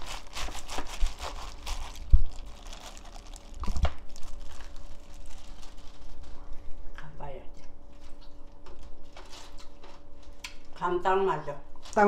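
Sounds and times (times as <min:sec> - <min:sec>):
wet rustling of vegetables: 0:00.0 - 0:06.8
plastic glove crinkling: 0:00.0 - 0:06.9, 0:07.9 - 0:10.2, 0:11.8 - 0:12.0.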